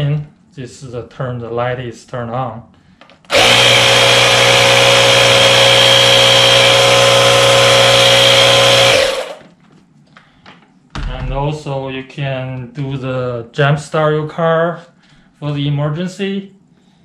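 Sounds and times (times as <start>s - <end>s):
tire pump compressor humming: 3.3s - 9.4s.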